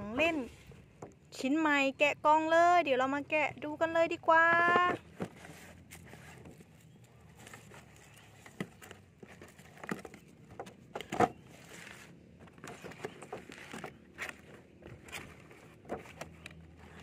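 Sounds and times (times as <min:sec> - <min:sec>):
cardboard box handled and opened: 0:04.5 - 0:17.0.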